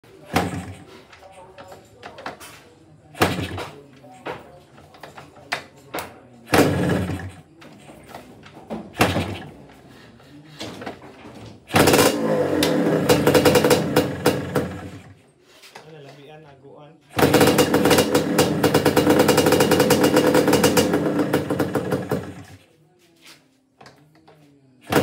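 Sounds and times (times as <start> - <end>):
motorcycle engine kick-start cranking: 0.1 - 1.3, 3.2 - 3.8, 6.5 - 7.5, 8.9 - 9.5, 11.6 - 15.2, 17.1 - 22.6
two-stroke engine popping: 0.3 - 0.8, 3.2 - 3.7, 6.5 - 7.4, 11.7 - 15.2, 17.1 - 22.6.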